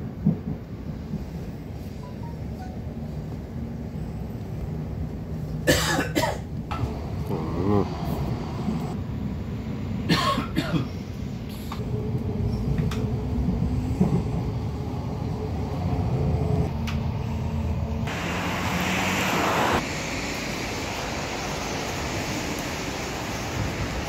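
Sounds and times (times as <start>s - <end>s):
train rumbling on rails: 0.0s - 24.0s
rushing hiss: 18.1s - 24.0s.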